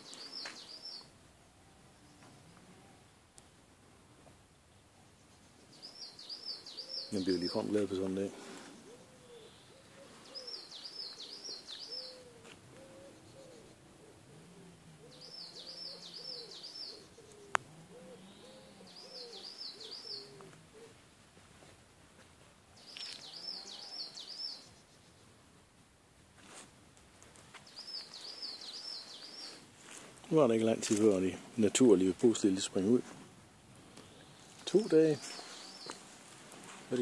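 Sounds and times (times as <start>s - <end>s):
pigeon cooing: 8.5s - 21.0s
songbird whistling: 15.1s - 17.4s.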